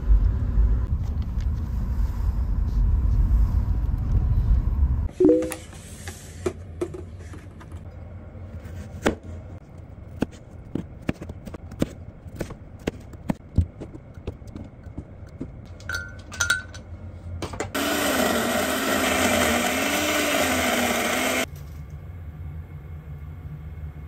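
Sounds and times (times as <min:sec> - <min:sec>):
blender running: 0:17.8 - 0:21.5.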